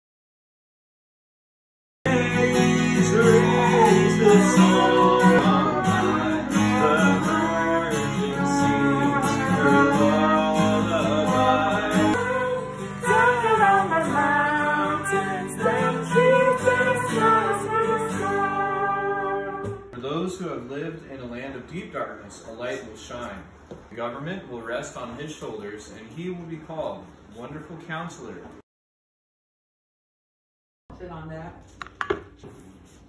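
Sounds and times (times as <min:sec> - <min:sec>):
acoustic guitar strummed: 0:02.1 - 0:20.0
trumpet playing a melody: 0:02.1 - 0:20.0.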